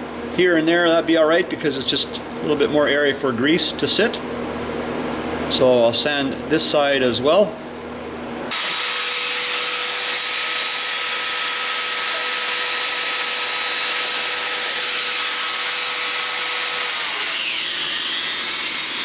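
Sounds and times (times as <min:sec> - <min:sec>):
rotary tool whining: 0:08.5 - 0:19.0.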